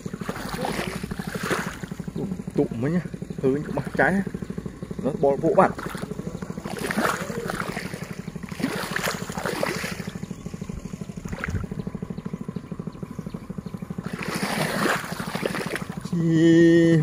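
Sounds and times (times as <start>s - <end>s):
splashes in mud and water: 0.0s - 2.1s, 5.6s - 10.4s, 11.2s - 11.8s, 14.0s - 16.1s
small engine running: 0.0s - 17.0s.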